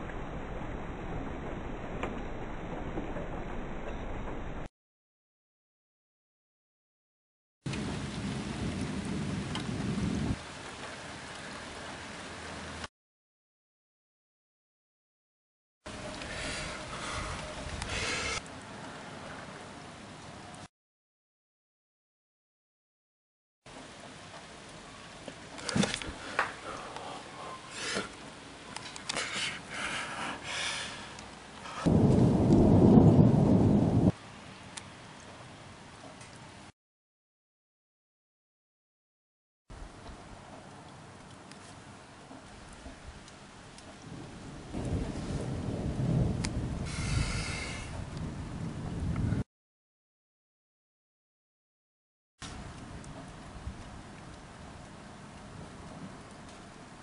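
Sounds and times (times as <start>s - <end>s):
low rumble of thunder: 7.7s - 10.5s, 31.8s - 34.2s, 44.0s - 49.4s
heavy rain falling: 7.7s - 12.9s, 15.9s - 20.7s, 23.7s - 36.7s, 41.1s - 49.4s.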